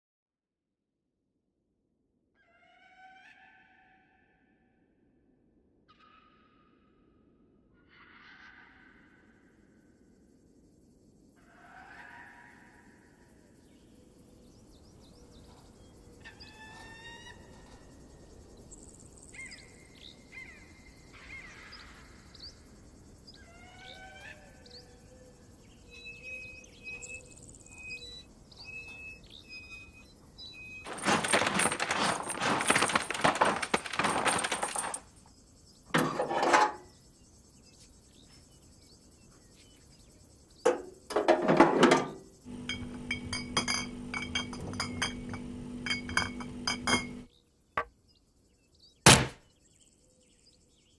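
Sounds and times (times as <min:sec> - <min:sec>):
drinks cooler electric hum: 0:42.5 - 0:47.3.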